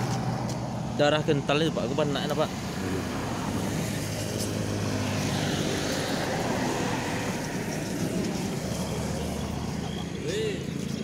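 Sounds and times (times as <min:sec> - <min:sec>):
road traffic: 0:00.0 - 0:11.0
vehicle passing loudly: 0:02.4 - 0:10.2.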